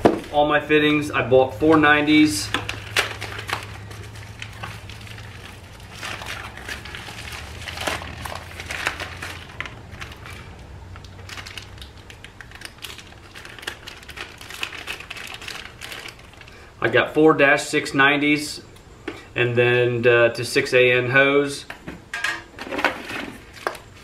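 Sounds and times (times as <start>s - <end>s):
plastic packaging crinkling: 1.6s - 16.7s.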